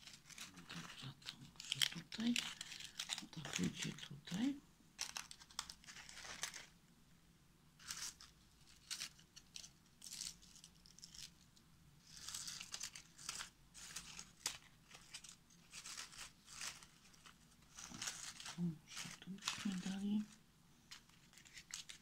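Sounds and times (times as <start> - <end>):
dry husks crinkling: 0.0 - 6.7, 12.0 - 22.0.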